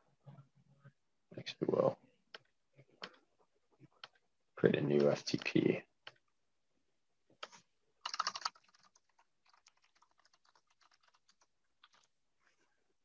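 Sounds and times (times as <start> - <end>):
typing on computer keyboard: 7.4 - 12.1.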